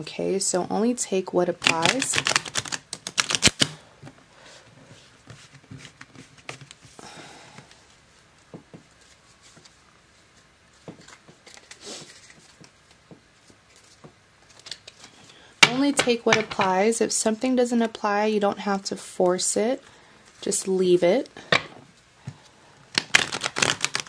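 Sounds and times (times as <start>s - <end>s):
cards being riffle-shuffled: 1.6s - 3.8s, 8.8s - 15.4s, 22.9s - 24.0s
taps and rustles of handling cards: 1.6s - 4.2s, 5.0s - 16.8s, 21.5s - 24.0s.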